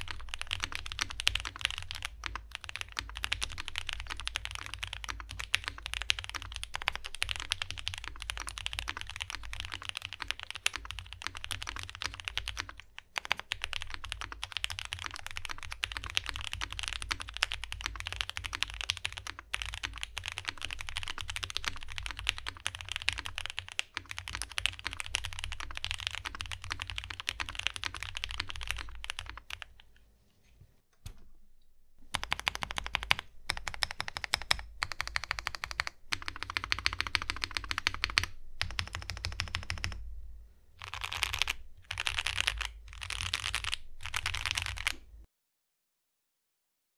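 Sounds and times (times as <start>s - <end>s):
fast mechanical keyboard typing: 0.0s - 29.8s, 32.1s - 40.0s, 40.8s - 45.0s.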